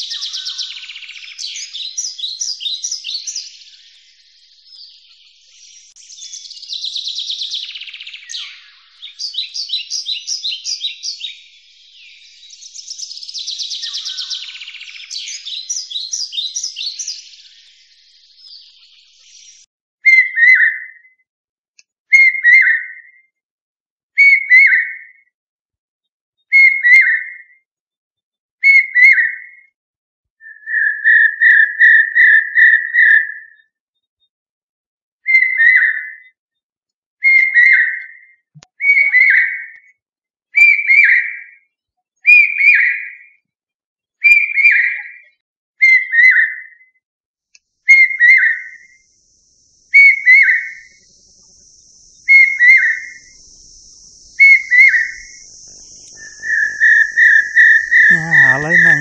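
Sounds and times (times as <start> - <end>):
loud whistled notes: 48.0 - 59.0.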